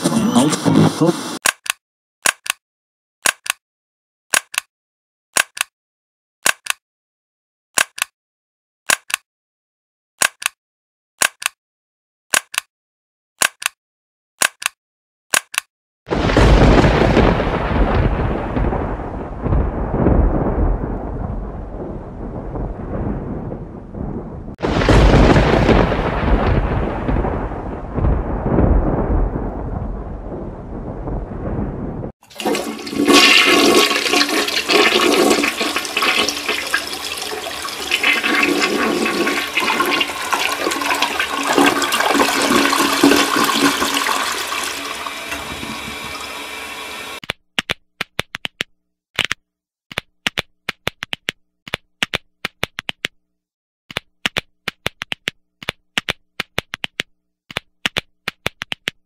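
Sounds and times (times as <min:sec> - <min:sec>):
sharp clicks: 0:03.2 - 0:03.6, 0:04.3 - 0:04.7, 0:05.4 - 0:05.7, 0:08.9 - 0:09.2, 0:10.2 - 0:10.6, 0:11.2 - 0:11.6, 0:12.3 - 0:12.7, 0:13.4 - 0:13.8, 0:14.4 - 0:15.7, 0:53.9 - 0:59.0
low rumble: 0:16.1 - 0:32.2
rushing gurgling water: 0:32.3 - 0:47.2.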